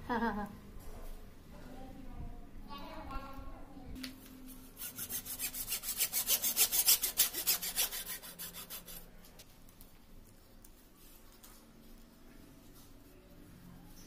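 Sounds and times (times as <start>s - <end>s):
hacksaw cutting plastic pipe: 4.8s - 9.0s.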